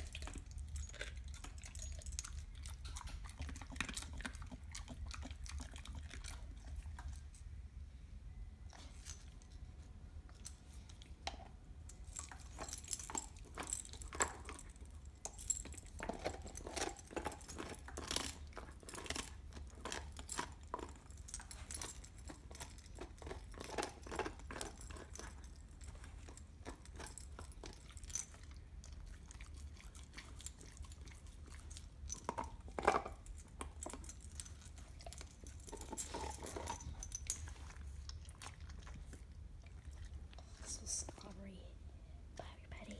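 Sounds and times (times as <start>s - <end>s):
dog chewing bone: 0.0s - 7.4s, 10.8s - 40.6s.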